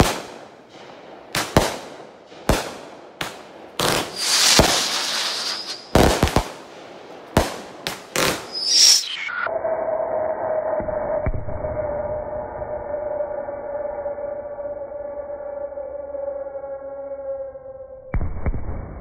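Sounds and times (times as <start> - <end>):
firework bangs: 0.0 - 9.2
hissing crackle of fireworks: 0.0 - 9.3.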